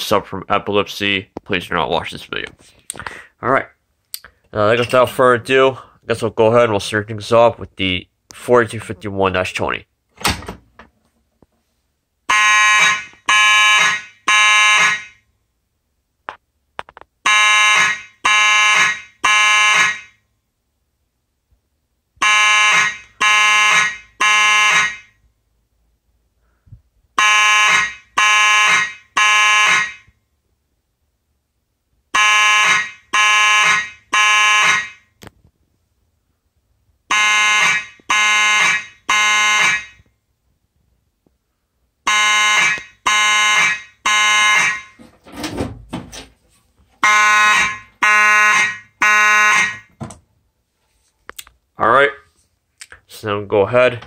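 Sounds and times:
fire alarm horn blasts: 12.3 - 15.3, 17.2 - 20.2, 22.2 - 25.2, 27.2 - 30.2, 32.1 - 35.1, 37.1 - 40.1, 42.0 - 45.0, 47.0 - 50.0.

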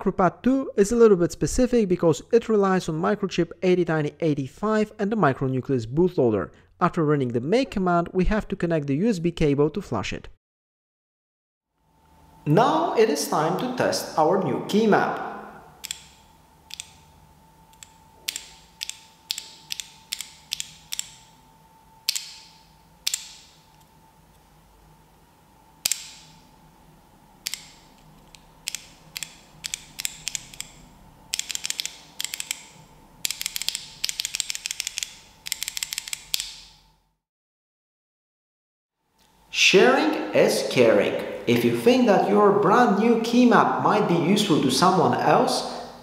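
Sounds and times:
keyboard keys clicking: 27.4 - 36.6.

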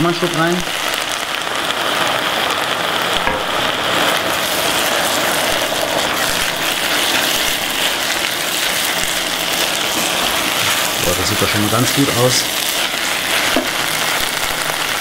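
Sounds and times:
meat and vegetables sizzling in a pot: 0.0 - 15.0
wooden spoon stirring: 6.0 - 14.2.

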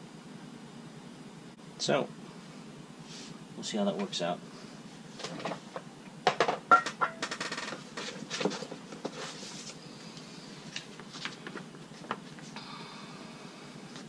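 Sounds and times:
sharp knocks: 6.3 - 7.7
paper and cardboard rustling: 7.9 - 9.8, 10.7 - 12.5.

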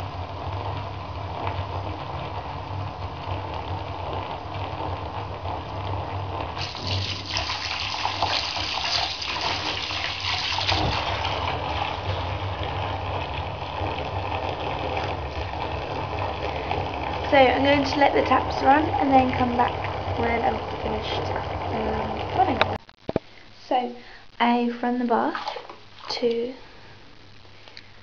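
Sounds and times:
low steady hum: 0.0 - 28.0
bath tap water splashing: 6.3 - 22.7.

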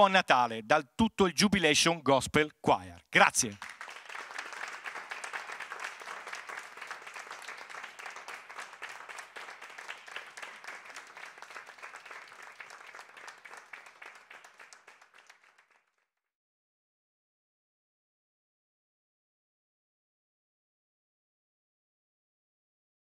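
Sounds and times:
hands clapping: 3.2 - 16.1.

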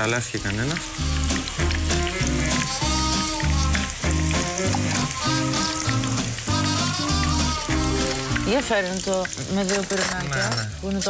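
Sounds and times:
fritters sizzling in hot oil: 0.0 - 11.0
background music with steady beat: 0.6 - 8.8.

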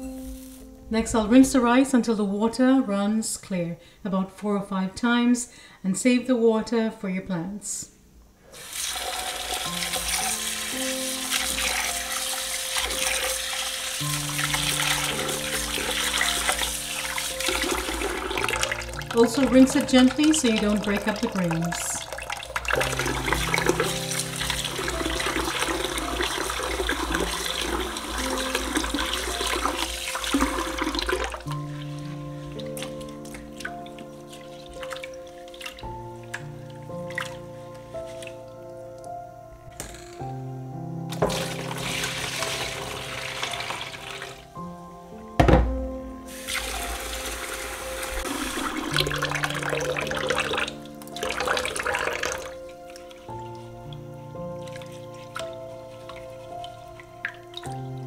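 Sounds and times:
soft background music: 0.0 - 58.0
tap water pouring into bowl: 8.6 - 32.0, 41.1 - 44.4, 46.4 - 53.3
hand swirling rice in water: 8.6 - 35.9.

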